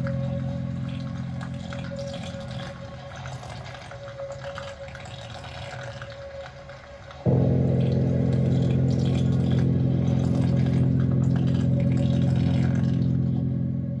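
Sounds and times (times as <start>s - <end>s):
low mechanical drone: 0.0s - 3.9s, 7.2s - 14.0s.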